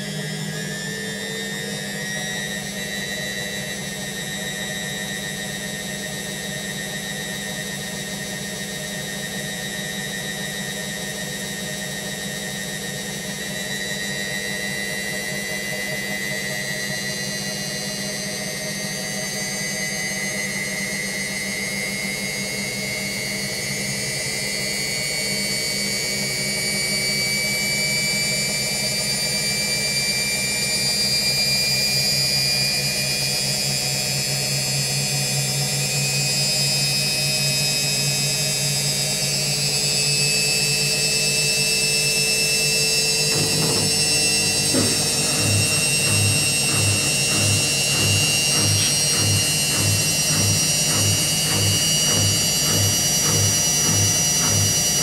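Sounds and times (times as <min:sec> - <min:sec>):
high whine rising in pitch: 0:42.9 - 0:55.0
washing machine motor hum: 0:43.0 - 0:55.0.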